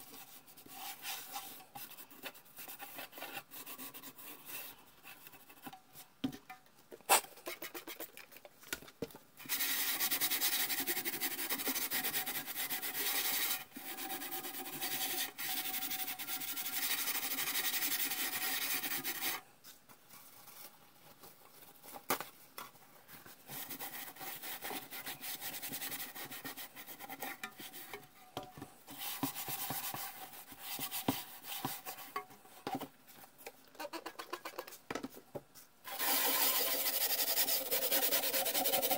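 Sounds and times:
steel wool scrubbing metal: 35.9 - 38.9.

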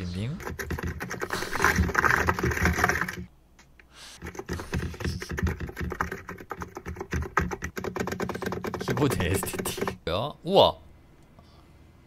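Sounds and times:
mechanical keyboard typing: 0.4 - 3.3, 4.2 - 10.0.

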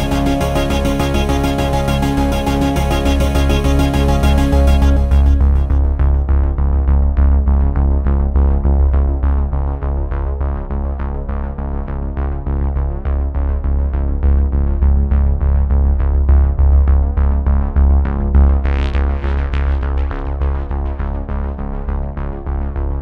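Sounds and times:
electronic synthesizer music: 0.0 - 6.4.

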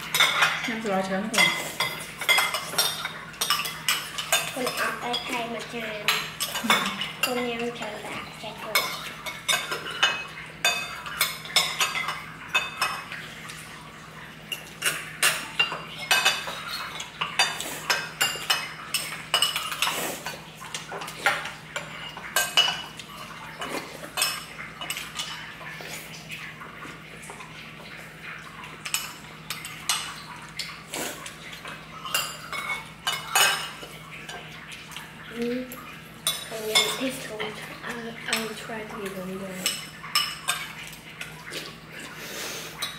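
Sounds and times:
cutlery clinking on dishes: 0.0 - 5.4, 8.7 - 13.2, 14.5 - 25.5, 28.7 - 34.5, 38.3 - 41.4.

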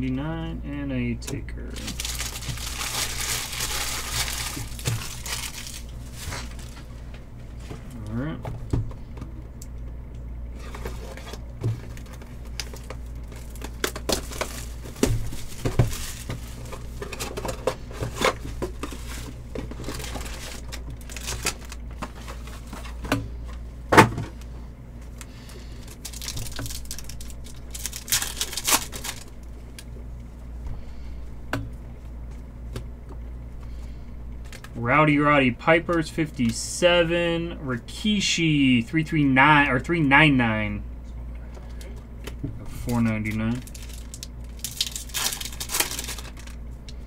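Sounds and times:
steady low hum: 0.0 - 47.0
wrapper rustling and crinkling: 1.8 - 7.1, 10.6 - 23.0, 25.5 - 29.5, 43.2 - 46.6.

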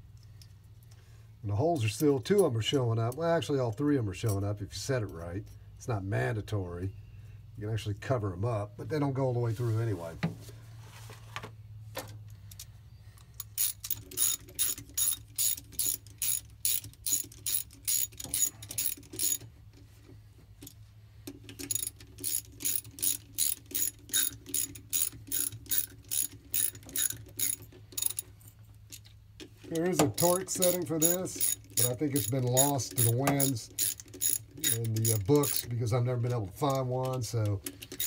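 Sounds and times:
socket ratchet clicking: 13.2 - 19.5, 20.6 - 28.3, 29.7 - 35.8, 36.7 - 38.0.

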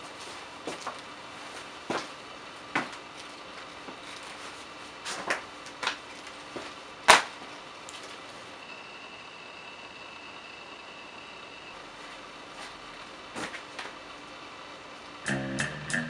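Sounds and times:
faint steady high tone: 8.6 - 11.8.

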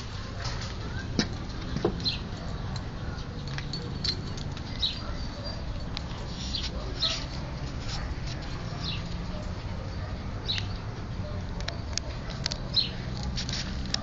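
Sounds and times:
puppies squeaking: 0.3 - 10.2.

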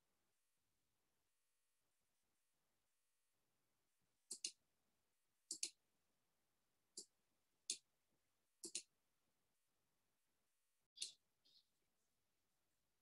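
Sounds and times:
computer mouse clicks: 4.3 - 4.6, 5.5 - 5.8, 6.9 - 7.9, 8.6 - 8.9, 11.0 - 11.2.

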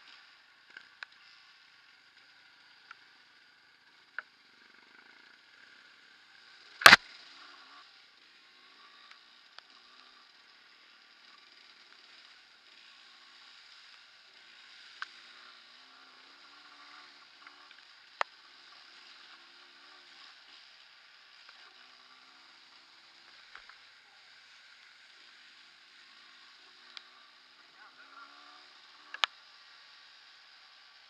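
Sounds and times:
motorcycle engine running: 0.0 - 31.0
sharp clicks: 6.8 - 7.1.

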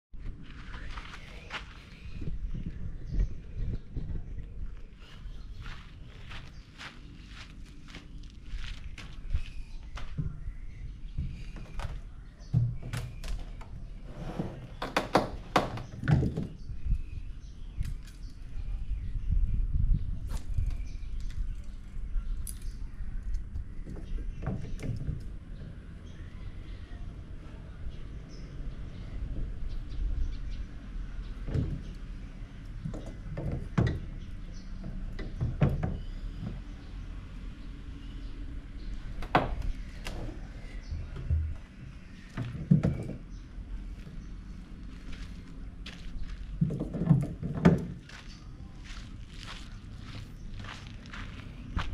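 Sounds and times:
low wind rumble: 0.1 - 51.9
hollow plastic thumps and knocks: 32.8 - 34.1, 34.8 - 36.6, 46.6 - 48.0.

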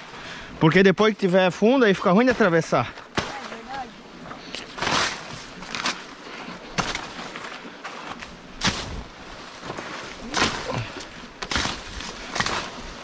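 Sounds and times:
leaves and stems brushing: 2.0 - 13.0
footsteps on dry leaves and twigs: 4.5 - 13.0.

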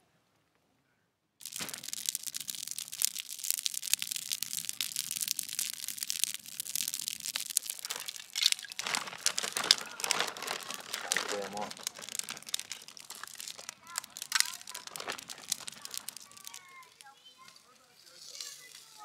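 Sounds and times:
wood fire crackling and popping: 1.4 - 19.0
paper bag rustling: 7.6 - 17.0.

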